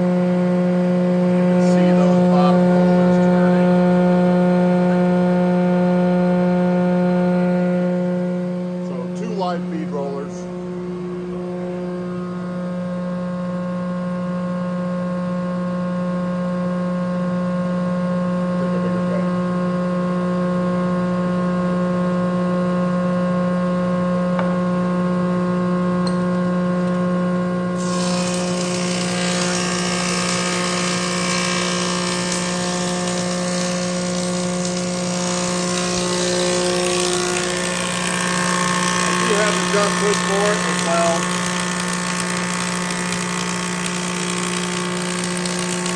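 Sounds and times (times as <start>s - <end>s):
planer machine hum: 0.0s - 14.9s, 26.6s - 45.9s.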